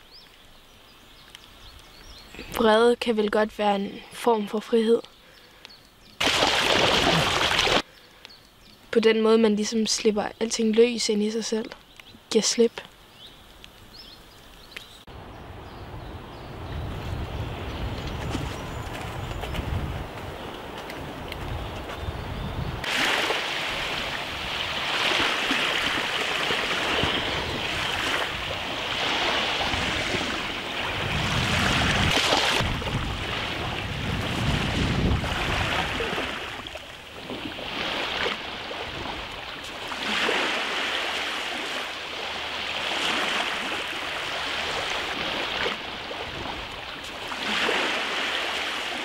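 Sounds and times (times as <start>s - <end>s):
wind buffeting microphone: 15.1s - 39.5s
waves washing onto shore: 22.7s - 49.0s.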